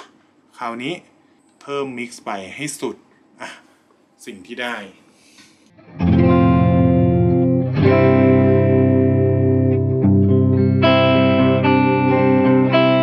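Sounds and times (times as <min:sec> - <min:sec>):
pitch-shifted electric guitar chords: 0:05.8 - 0:13.0.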